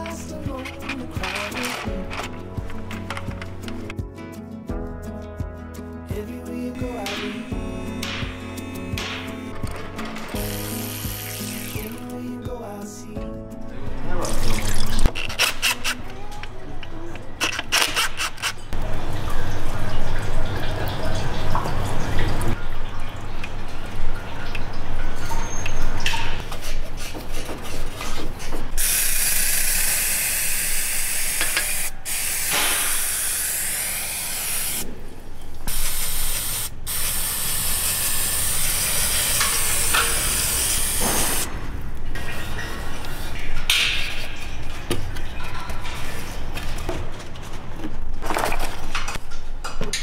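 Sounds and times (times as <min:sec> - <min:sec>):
aerosol spray can hissing: 0:10.4 - 0:12.0, 0:28.8 - 0:34.8, 0:35.7 - 0:41.5.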